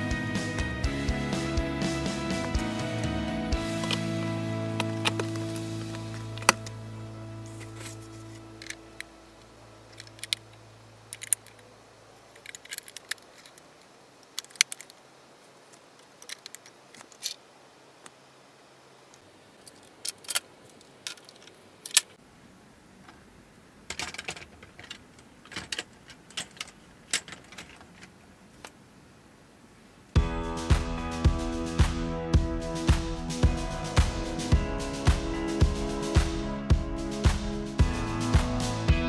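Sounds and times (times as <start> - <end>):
plastic bricks clicking: 9.9 - 10.5, 11.1 - 11.7, 12.3 - 15.0, 15.8 - 17.4, 19.6 - 22.2, 23.9 - 28.8.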